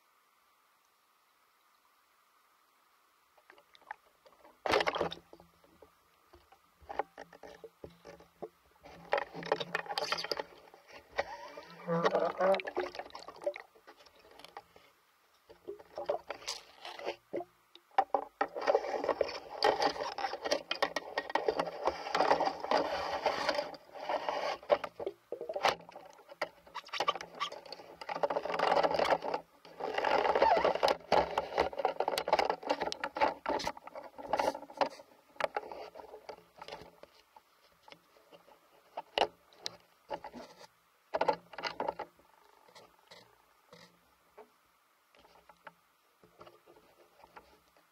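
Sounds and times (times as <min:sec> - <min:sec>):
underwater crackling and scraping: 0:03.4 - 0:47.9.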